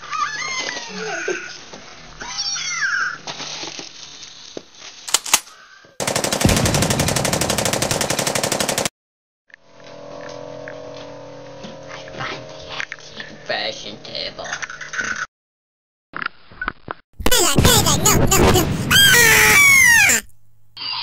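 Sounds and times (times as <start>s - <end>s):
sharp cracks: 5.1s - 8.9s
machine-gun burst sound effect: 6.0s - 8.9s.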